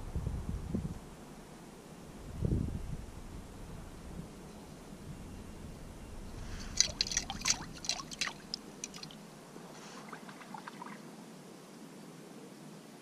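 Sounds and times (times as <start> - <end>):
water dripping: 6.4 - 9.2
water splashing: 6.4 - 9.2.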